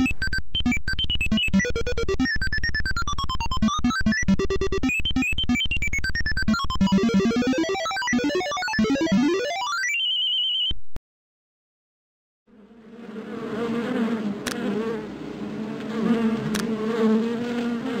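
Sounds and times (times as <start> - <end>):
bee buzzing sound effect: 12.5 - 18.0.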